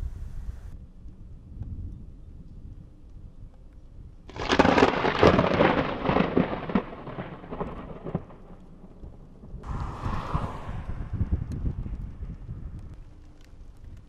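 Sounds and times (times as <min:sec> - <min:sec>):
thunder crack and rumble: 0:04.3 - 0:13.1.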